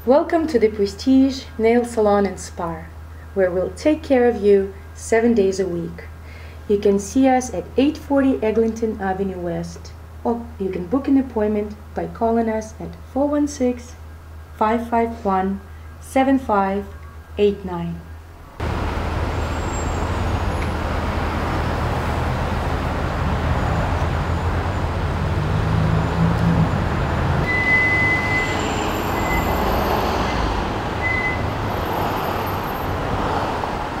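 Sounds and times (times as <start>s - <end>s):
low rumble of passing vehicles: 0.0s - 34.0s
thin high whine: 27.4s - 32.8s.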